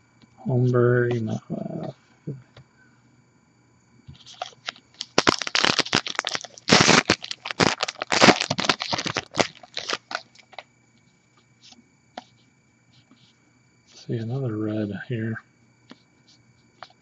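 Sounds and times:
wrapper tearing and crinkling: 4.3 - 10.6.

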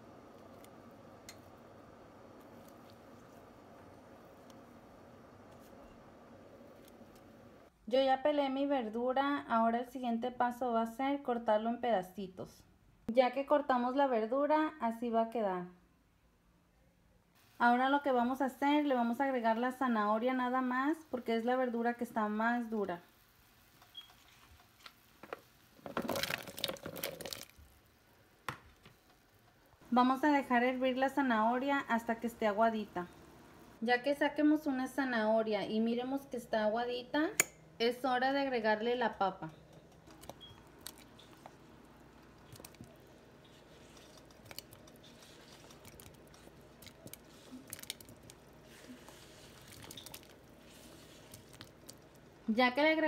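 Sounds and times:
low steady hum: 0.0 - 8.0, 29.0 - 53.0
vegetables splashing into boiling pot: 23.4 - 28.9, 40.1 - 52.5.

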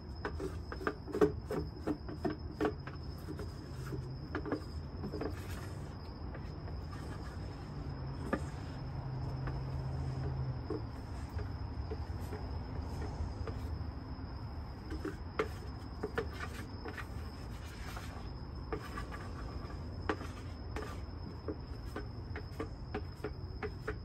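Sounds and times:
cricket trilling: 0.0 - 24.0
stir stick scraping plastic container: 0.0 - 24.0.

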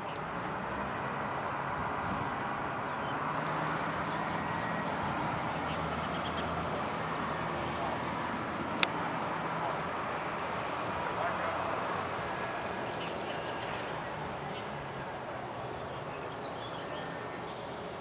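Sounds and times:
sharp click: 8.8 - 9.0.

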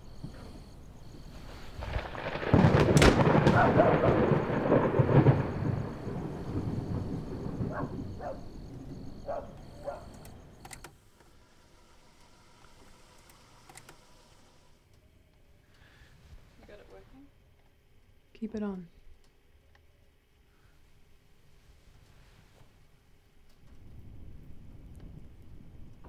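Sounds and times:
thunderclap rumbling: 0.0 - 10.6, 23.6 - 26.0.

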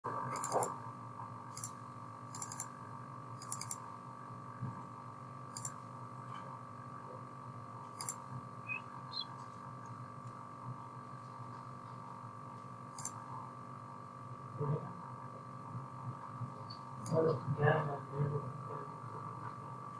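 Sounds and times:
steady low hum: 0.0 - 19.9
mouse buttons clicking: 0.4 - 0.7, 2.4 - 2.7, 3.4 - 3.8.

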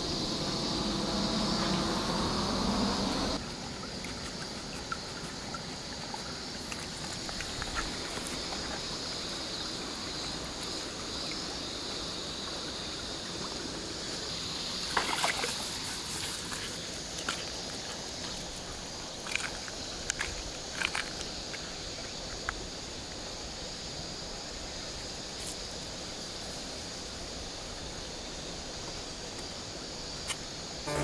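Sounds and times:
shallow water trickling: 3.4 - 11.9
dog splashing in water: 15.0 - 15.8.

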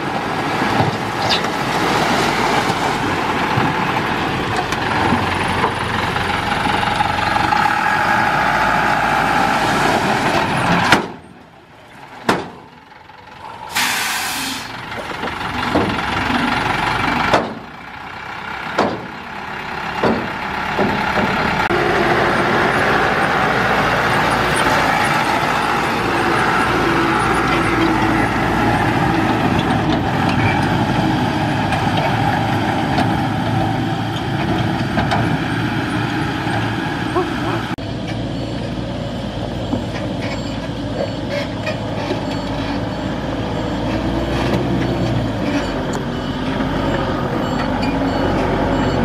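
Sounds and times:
truck diesel engine running: 2.4 - 49.0
air hiss: 13.7 - 14.7.

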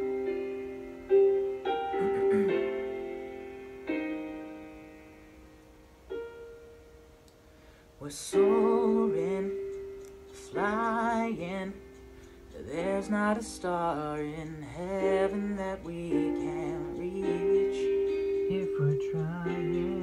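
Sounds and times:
slow piano chords: 0.0 - 20.0
man singing with vibrato: 8.0 - 20.0.

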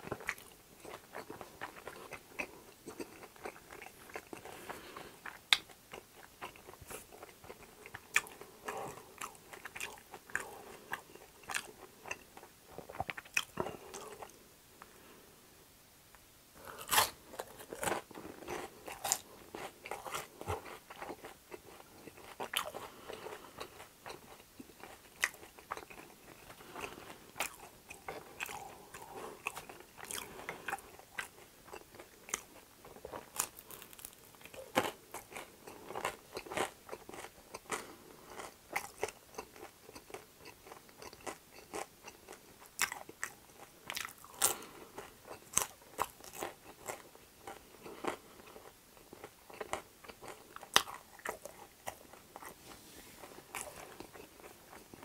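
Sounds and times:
chewing: 0.0 - 14.9, 16.6 - 55.0
crunching crispy fried food: 29.4 - 52.6.

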